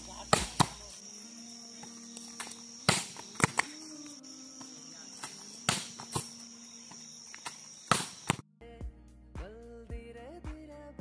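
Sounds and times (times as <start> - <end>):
crickets droning: 0.0 - 8.4
volleyball slaps: 0.3 - 0.9, 2.4 - 3.8, 5.2 - 6.4, 7.4 - 8.4.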